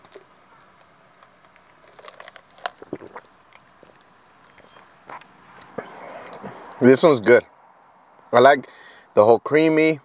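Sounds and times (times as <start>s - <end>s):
mouth clicks and sips: 1.5s - 4.1s, 5.0s - 6.8s.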